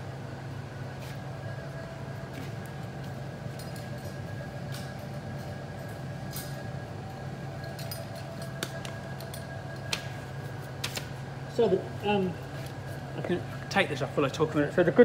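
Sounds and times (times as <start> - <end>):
fans humming: 0.0 - 15.0
light clicks and clinks: 3.5 - 9.9.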